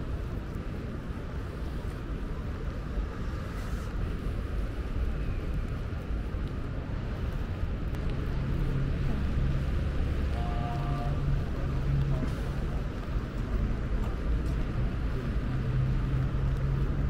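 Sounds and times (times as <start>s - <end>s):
city traffic rumble on wet streets: 0.0s - 17.0s.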